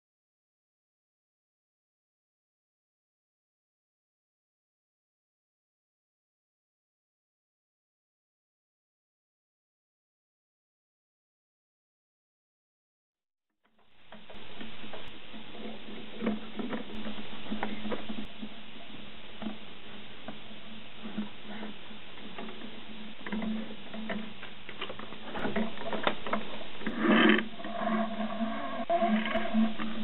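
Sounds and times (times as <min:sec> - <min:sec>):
low hum and hiss: 0:13.8 - 0:30.0.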